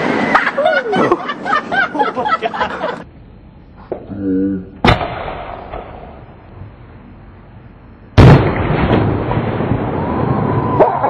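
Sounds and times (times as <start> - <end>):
echoing rumble: 2.6 - 11.0
loud firework bang: 4.8 - 6.2, 8.2 - 11.0.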